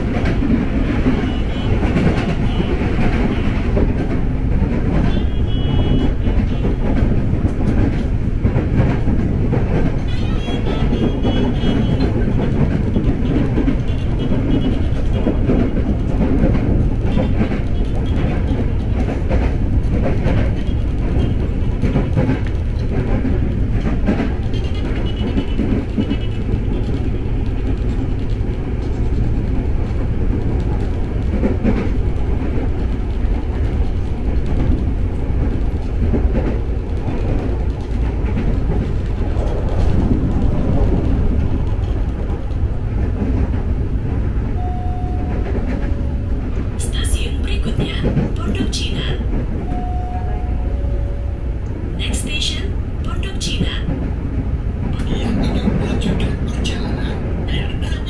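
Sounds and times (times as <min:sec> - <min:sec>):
wheels clacking over rail joints: 0:00.0 - 0:44.6
electric train rumbling: 0:00.0 - 0:58.0.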